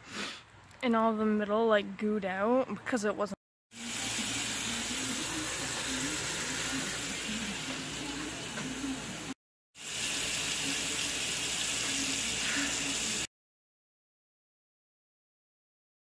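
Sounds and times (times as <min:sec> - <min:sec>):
faucet water running: 0:03.7 - 0:13.3.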